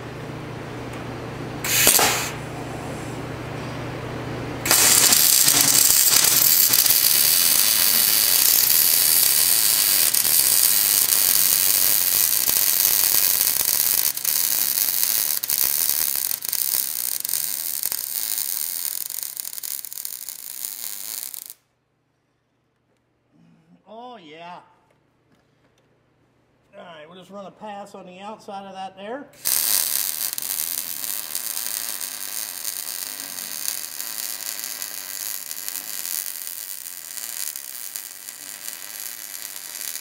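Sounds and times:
welding arc crackling: 1.6 - 2.5, 4.6 - 21.6, 29.4 - 40.0.

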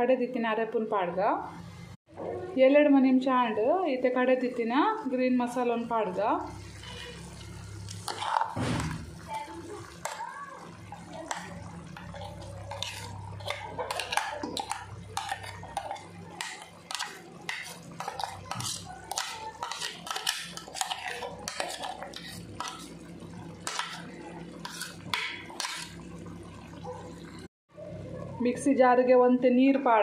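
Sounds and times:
spoon scraping steel bowl: 6.7 - 8.6, 11.2 - 26.0.

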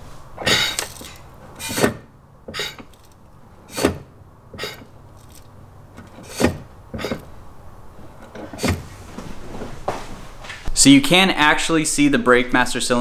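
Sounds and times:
brake pedal clunks: 0.4 - 7.4, 8.0 - 9.0.

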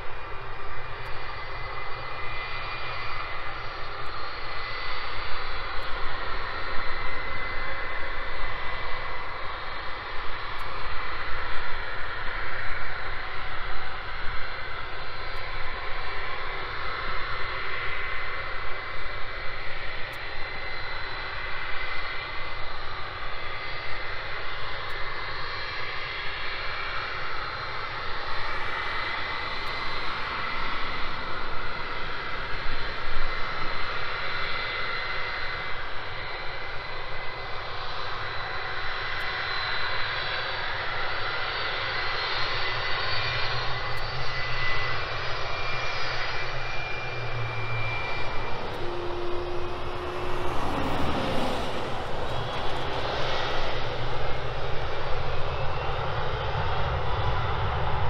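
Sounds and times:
jet engines with high whine: 0.0 - 58.0
low hum: 44.0 - 57.2.

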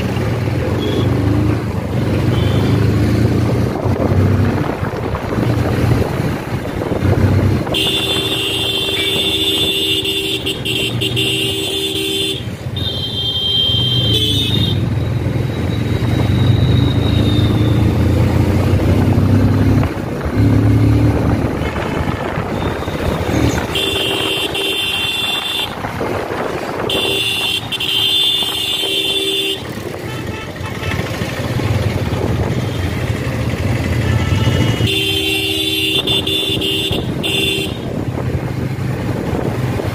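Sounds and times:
motorcycle engine running: 0.0 - 39.9
vehicle horn blasts: 7.7 - 14.8, 21.7 - 25.8, 26.8 - 31.1, 34.1 - 37.9.

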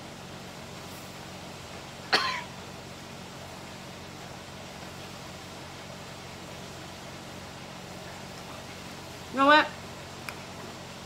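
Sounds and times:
steady low hum: 0.0 - 11.0
person coughing: 2.1 - 2.5.

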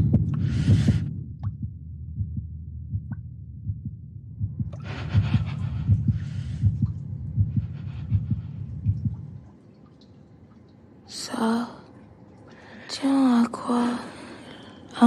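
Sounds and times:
heartbeat thumps: 0.0 - 9.5.

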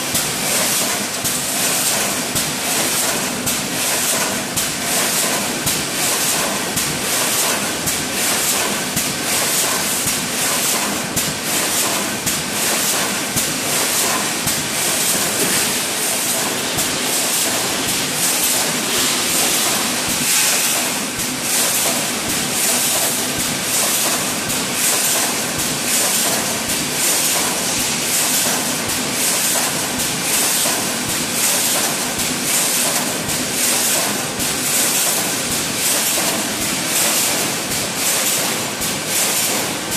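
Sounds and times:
machine clicking and clacking: 0.0 - 39.9
welding machine hissing: 14.0 - 22.4, 27.1 - 28.8.

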